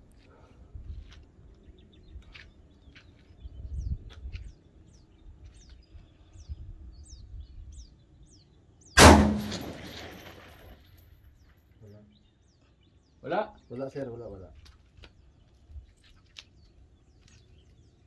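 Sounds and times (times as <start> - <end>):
rifle shot with echo: 9.0 - 10.8.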